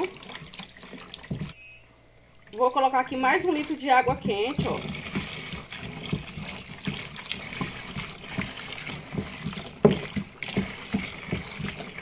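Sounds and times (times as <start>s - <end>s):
liquid sloshing: 0.0s - 1.6s, 2.4s - 12.0s
water pouring into basin: 0.0s - 1.6s, 4.5s - 12.0s
wooden stick knocking: 3.9s - 5.3s, 7.5s - 12.0s.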